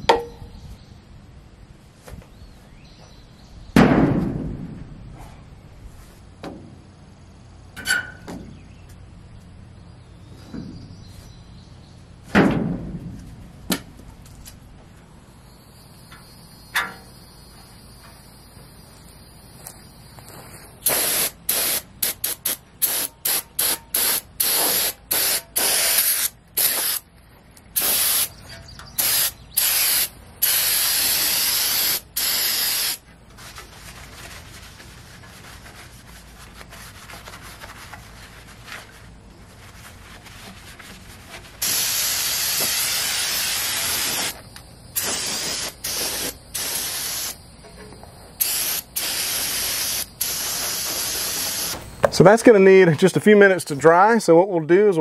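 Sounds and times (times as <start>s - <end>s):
aerosol spray can hissing: 20.8s - 27.0s, 27.8s - 28.4s, 29.0s - 33.0s, 41.6s - 44.4s, 45.0s - 47.4s, 48.4s - 51.8s.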